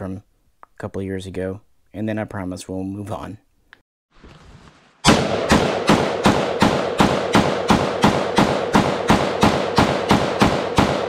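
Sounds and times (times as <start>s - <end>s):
rifle shots with echo: 5.1s - 11.0s.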